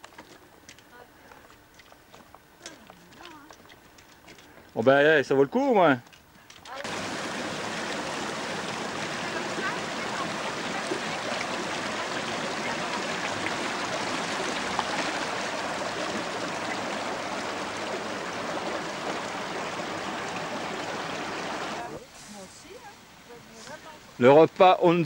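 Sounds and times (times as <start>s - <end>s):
stream rushing: 6.8s - 24.3s.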